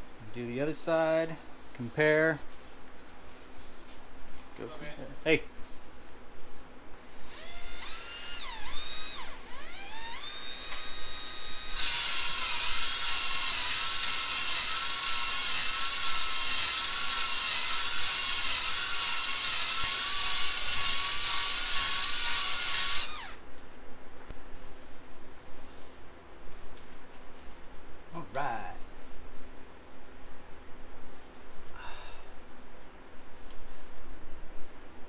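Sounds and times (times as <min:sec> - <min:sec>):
cordless drill whining: 0:07.2 - 0:23.4.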